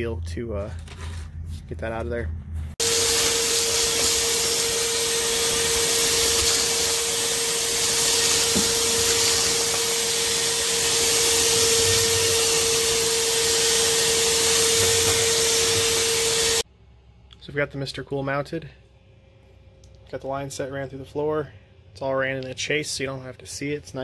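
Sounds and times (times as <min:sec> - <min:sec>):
hose sucking up grit: 0:02.8 - 0:16.6
shop vacuum running: 0:02.8 - 0:16.7.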